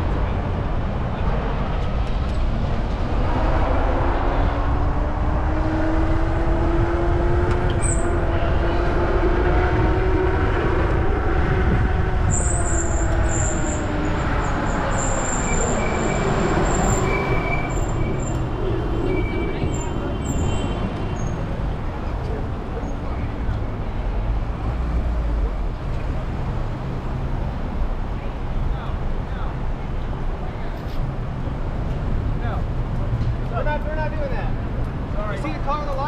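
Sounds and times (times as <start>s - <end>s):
road rumble: 0.0s - 36.0s
wind on microphone: 2.5s - 14.4s.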